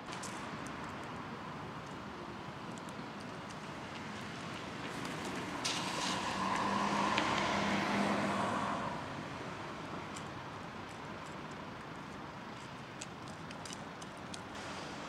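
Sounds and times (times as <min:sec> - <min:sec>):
motor vehicle passing: 0:05.0 - 0:09.2.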